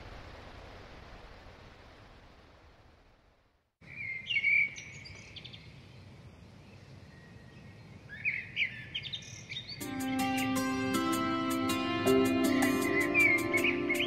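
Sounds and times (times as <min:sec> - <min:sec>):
bird chirps: 0:03.8 - 0:10.3, 0:12.8 - 0:14.0
music with sustained chords: 0:09.8 - 0:14.0.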